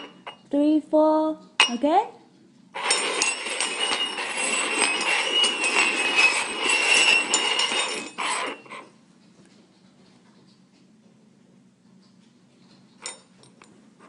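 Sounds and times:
metal cups scraping on wooden table: 0:00.0 - 0:00.4, 0:02.8 - 0:08.9.

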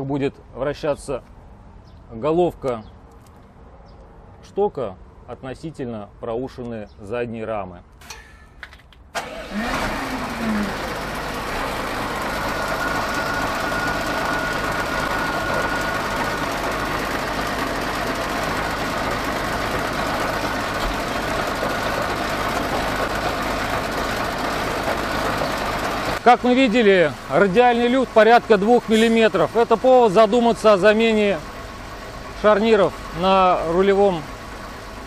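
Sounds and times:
diesel engine starting and idling: 0:08.0 - 0:35.0.

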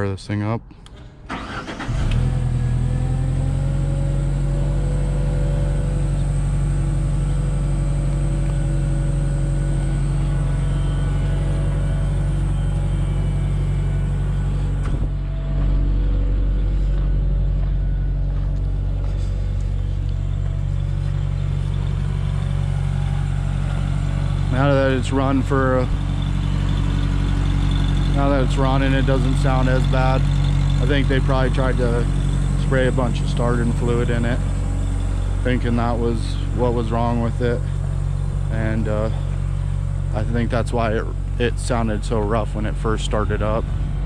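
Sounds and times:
engine running rough: 0:00.8 - 0:44.0.

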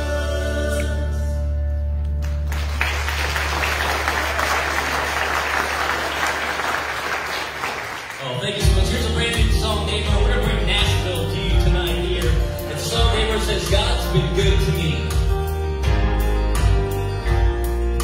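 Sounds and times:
congregation applauding: 0:02.2 - 0:08.7.

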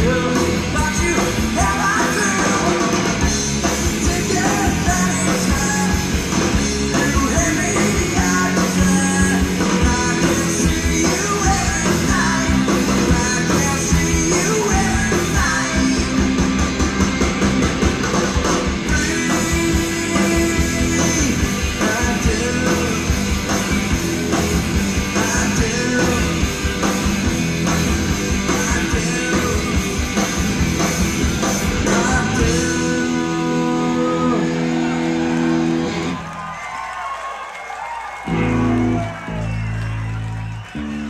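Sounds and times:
person singing: 0:00.0 - 0:03.1, 0:03.8 - 0:06.2, 0:06.8 - 0:16.2, 0:18.9 - 0:23.2, 0:25.0 - 0:26.6, 0:28.4 - 0:30.0, 0:31.8 - 0:35.0
distorted electric guitar: 0:00.0 - 0:36.2
bass guitar: 0:00.0 - 0:36.4, 0:38.3 - 0:41.0.

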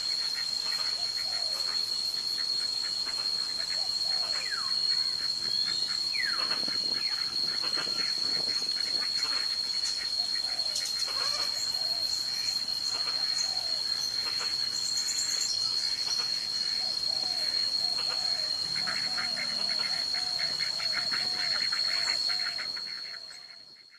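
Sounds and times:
insect whine: 0:00.0 - 0:23.9
ducks quacking: 0:18.0 - 0:23.6.

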